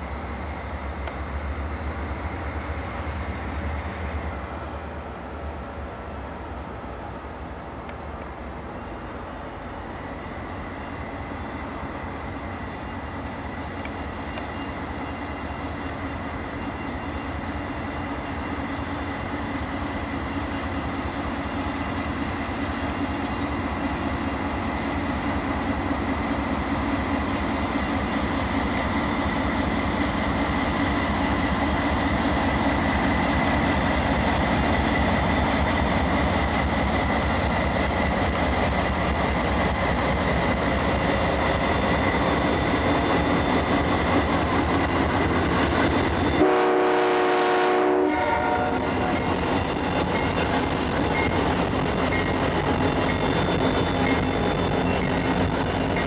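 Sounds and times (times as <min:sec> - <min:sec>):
freight train rumbling past: 0:00.0 - 0:56.0
locomotive horn: 0:46.4 - 0:49.3.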